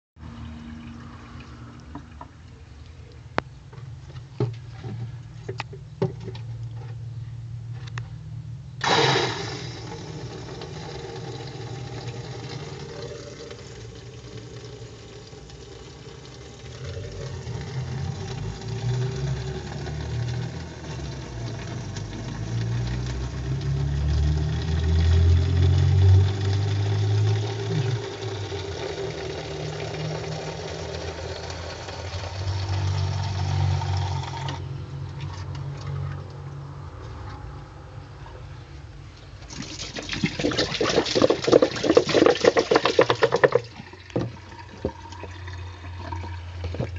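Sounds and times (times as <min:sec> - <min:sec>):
low steady hum: 0:00.2 - 0:46.9
water rushing into plastic bottle: 0:39.4 - 0:46.9.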